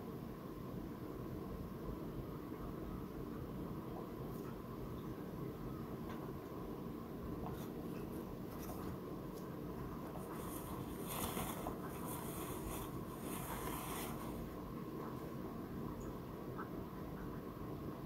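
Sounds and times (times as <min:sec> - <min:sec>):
low room hum: 0:00.0 - 0:18.0
scratchy rubbing on wooden floor: 0:10.2 - 0:14.5.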